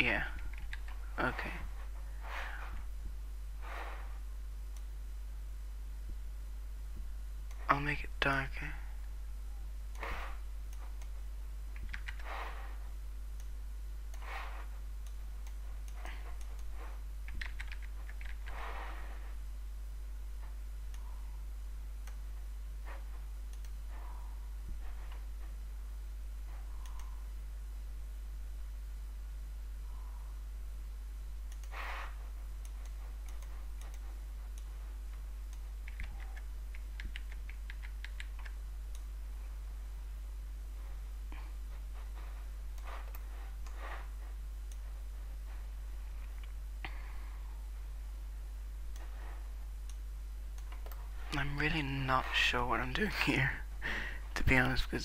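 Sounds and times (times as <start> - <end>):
steady low hum: 0.0 - 55.0
soft breaths on microphone: 1.4 - 4.3
mouse and keyboard clicking: 10.8 - 12.6, 15.1 - 18.8, 32.6 - 39.1.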